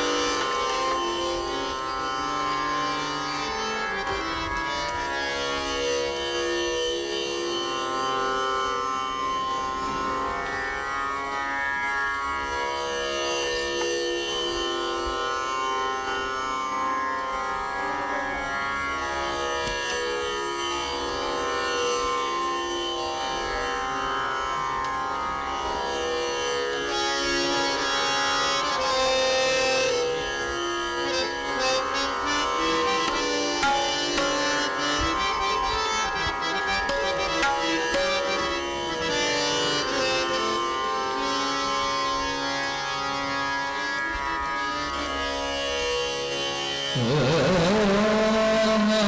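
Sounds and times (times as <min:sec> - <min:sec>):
slow melodic line over drone: 0:27.0 - 0:45.1
tabla strokes: 0:32.7 - 0:38.7.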